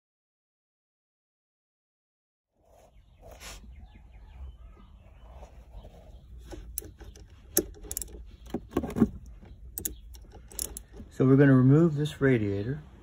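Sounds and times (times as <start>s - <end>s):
ratchet wrench clicking: 6.5s - 11.1s.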